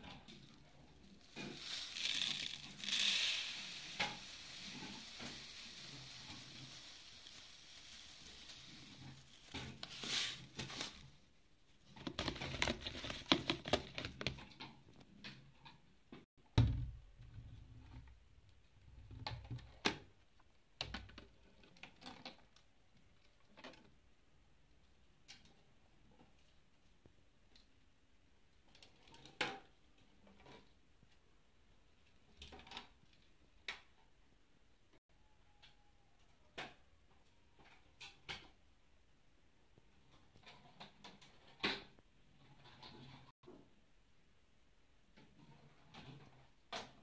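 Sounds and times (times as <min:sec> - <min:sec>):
rustling and knocks of handled items: 0:00.0 - 0:11.2, 0:11.8 - 0:18.0
sand pouring into plastic bowl: 0:01.2 - 0:11.1.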